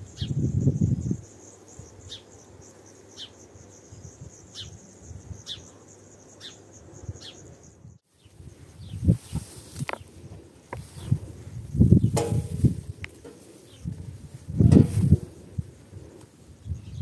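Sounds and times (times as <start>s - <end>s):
wind buffeting microphone: 0.0s - 2.7s, 3.6s - 5.7s, 6.8s - 17.0s
bird chirping: 0.0s - 9.1s
crickets trilling: 0.0s - 17.0s.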